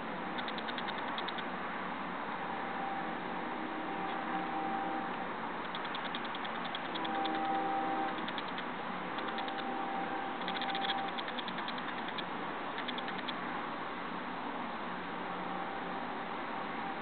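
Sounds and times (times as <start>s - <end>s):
rapid high-pitched ticking: 0.3s - 1.5s, 5.6s - 9.8s, 10.4s - 13.4s
city noise rush: 1.5s - 5.6s
humming tone: 2.4s - 5.3s, 6.9s - 8.3s, 9.2s - 11.2s, 15.3s - 17.0s.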